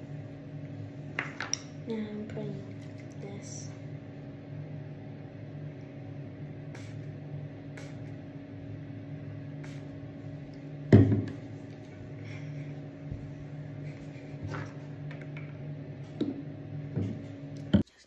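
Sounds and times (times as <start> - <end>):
low room hum: 0.0 - 18.0
pump spray bottle hissing: 6.7 - 7.1, 7.8 - 8.1, 9.6 - 10.0
loud thump: 10.9 - 11.4.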